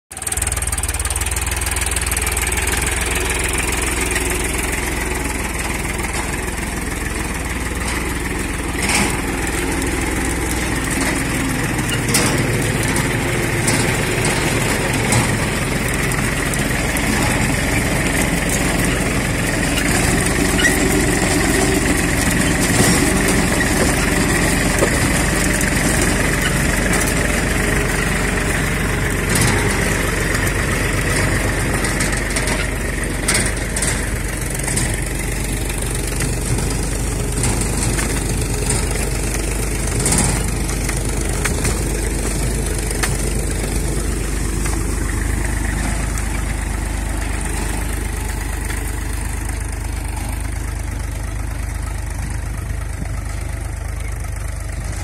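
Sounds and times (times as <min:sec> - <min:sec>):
tractor engine running: 0:00.1 - 0:55.0.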